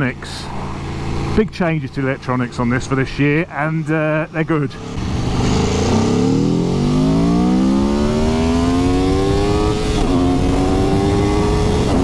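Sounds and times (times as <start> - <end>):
motorcycle engine accelerating: 4.6 - 12.0.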